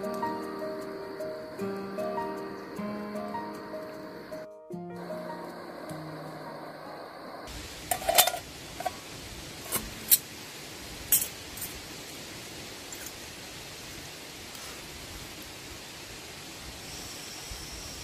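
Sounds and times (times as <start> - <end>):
stove hissing: 0.0 - 18.0
metal cookware clinking: 7.8 - 9.0, 11.1 - 11.8.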